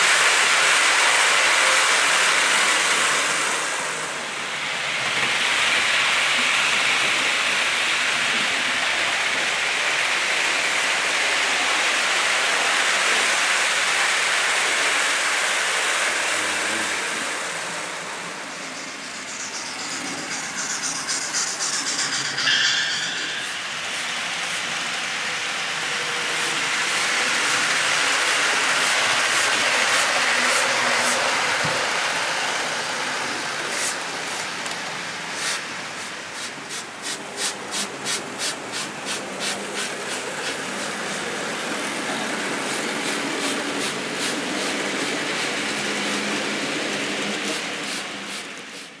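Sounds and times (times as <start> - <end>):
model train wheels on rails: 0.0 - 49.0.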